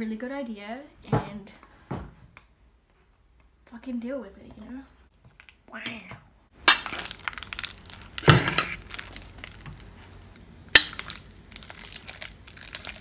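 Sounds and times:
bananas being mashed: 6.6s - 13.0s.

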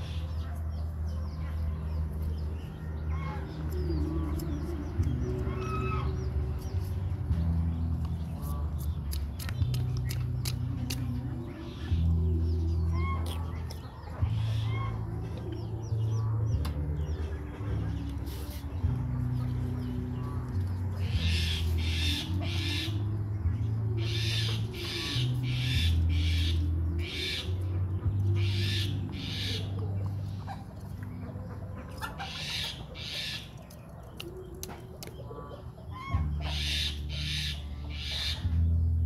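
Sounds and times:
young birds harsh raspy calls: 12.9s - 15.0s, 21.0s - 23.0s, 28.4s - 33.8s, 35.2s - 38.5s.

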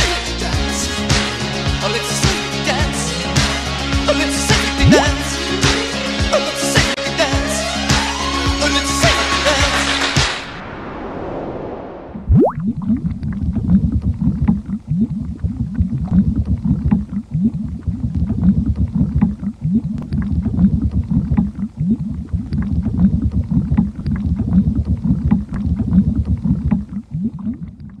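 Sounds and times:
bubbling rumble with gurgles: 12.2s - 28.0s.

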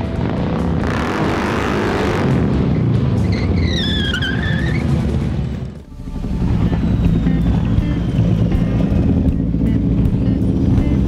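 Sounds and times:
music: 0.0s - 3.8s, 5.8s - 11.0s
vehicle engine: 0.0s - 11.0s
high tone dipping and rising: 5.9s - 8.8s.

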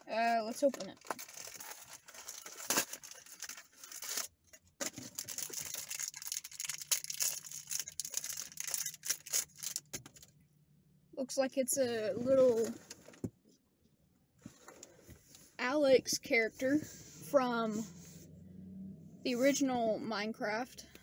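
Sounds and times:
wrapper crinkling and tearing: 0.5s - 10.3s.

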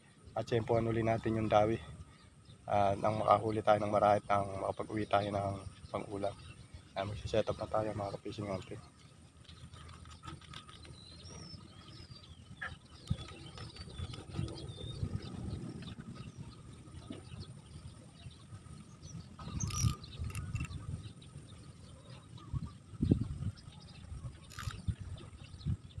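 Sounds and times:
small birds chirping: 0.0s - 26.0s
fishing reel knocks and rustles: 19.6s - 20.7s.

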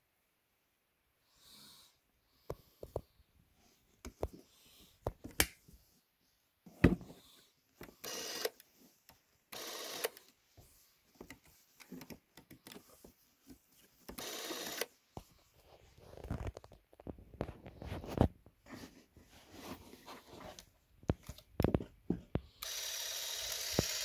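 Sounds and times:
camera motor running: 8.0s - 8.6s, 9.6s - 10.2s, 14.2s - 14.9s, 22.6s - 24.0s.

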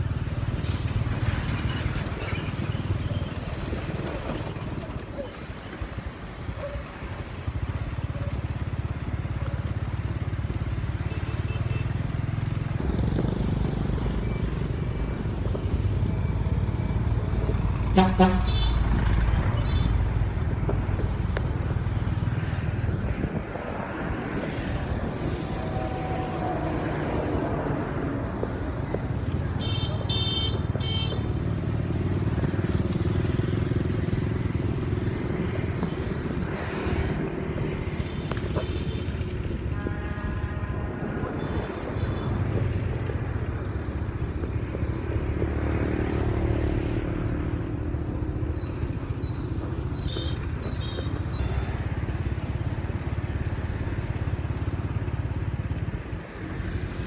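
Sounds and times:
street traffic rumble: 0.0s - 57.0s
vehicle horn honking: 17.9s - 18.8s, 38.8s - 42.3s.

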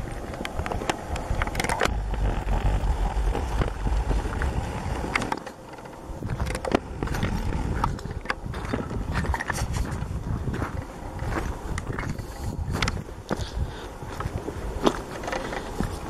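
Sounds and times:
wind buffeting microphone: 0.0s - 16.0s
sharp clicks and knocks: 0.4s - 9.6s.

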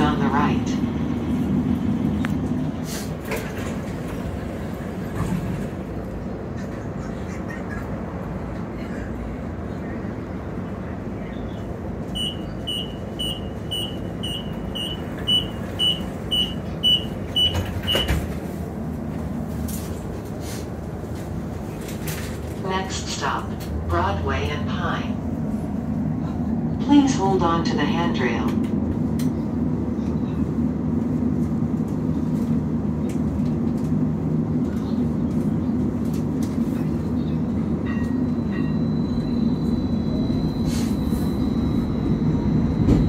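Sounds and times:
streetcar low hum: 0.0s - 43.0s
door-closing alarm beeping: 12.2s - 18.3s.

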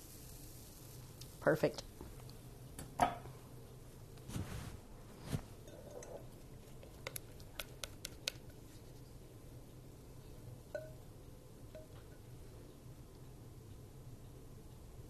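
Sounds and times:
low steady hum: 0.0s - 15.0s
glass clink with ring: 10.7s - 11.0s.

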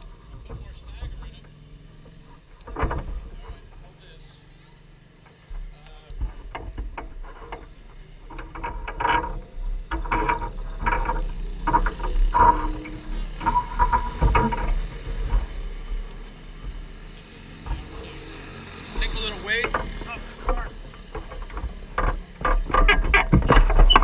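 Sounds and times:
low steady rumble: 0.0s - 24.0s
tools clicking and knocking: 17.6s - 24.0s.

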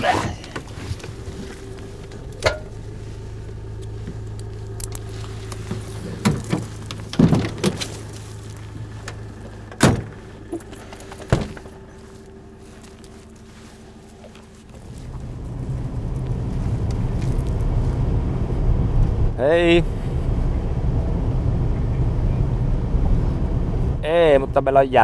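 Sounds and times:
truck engine idling: 0.0s - 25.0s
knocks and thuds: 5.7s - 8.1s, 9.7s - 11.7s.

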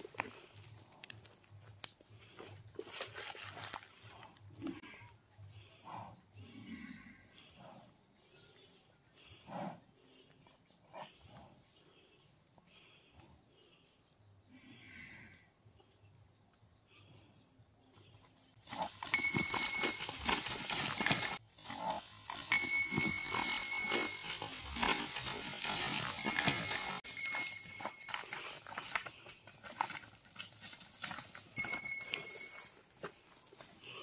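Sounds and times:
hooves churning through dry leaves: 0.0s - 4.4s, 18.6s - 34.0s
bulls scuffling head to head: 18.6s - 33.7s.

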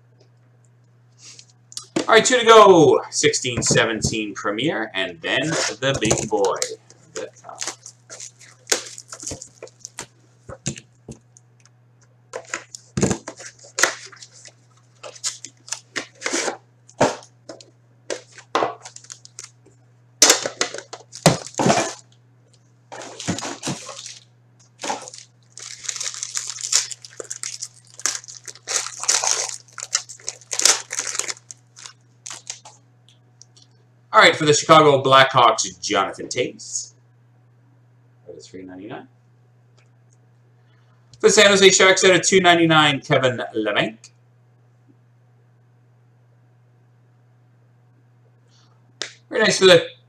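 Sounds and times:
foil wrapper crinkling: 5.4s - 10.8s, 12.4s - 16.5s, 17.5s - 22.1s, 22.9s - 32.8s.

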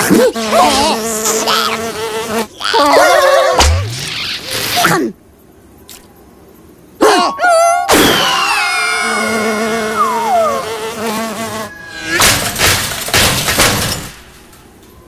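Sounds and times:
crashes and clatters: 12.2s - 14.9s.

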